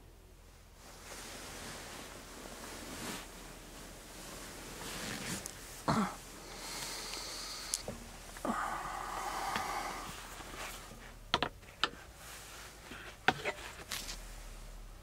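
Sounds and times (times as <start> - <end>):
fabric curtain rustling: 0.8 - 8.3, 12.0 - 14.8
sharp clicks and knocks: 11.3 - 12.0.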